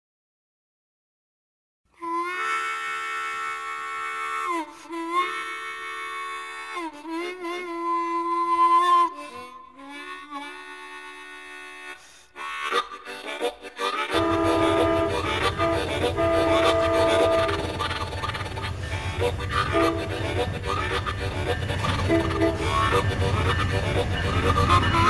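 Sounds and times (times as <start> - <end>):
blues harmonica playing: 2.0 - 25.0
fast rhythmic chugging: 14.0 - 25.0.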